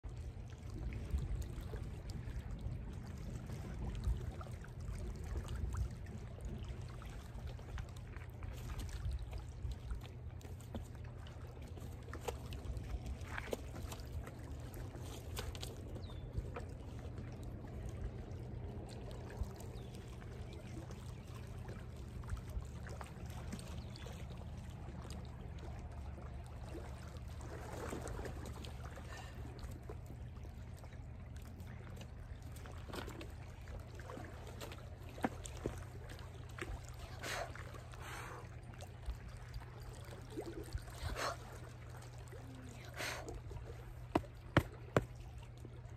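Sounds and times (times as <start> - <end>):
wind rumble on microphone: 0.1 - 10.2
lake waves lapping at shore: 0.1 - 45.9.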